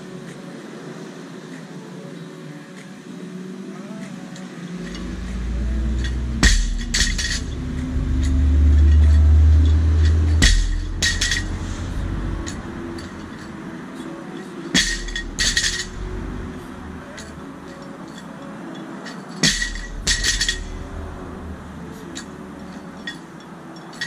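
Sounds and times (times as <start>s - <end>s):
sharp metallic clanks: 4.8s - 13.7s, 14.4s - 24.0s
truck engine rumble: 4.8s - 13.8s, 14.8s - 18.3s, 19.4s - 23.9s.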